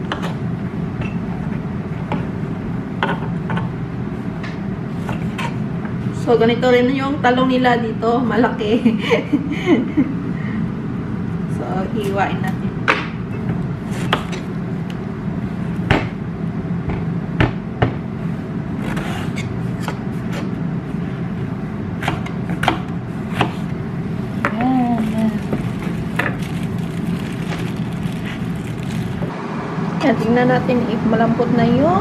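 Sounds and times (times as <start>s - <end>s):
low hum: 23.0s - 32.0s.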